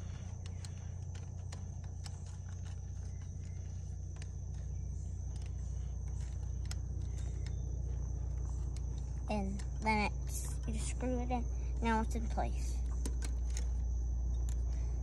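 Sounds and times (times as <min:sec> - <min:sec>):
metal parts clicking: 0:00.0 - 0:09.9
high whine: 0:00.0 - 0:15.0.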